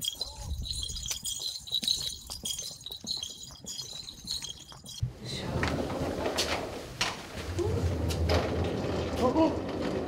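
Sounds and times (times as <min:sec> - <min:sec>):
footsteps on paving: 0:00.0 - 0:05.0
small bells jingling: 0:00.0 - 0:05.0.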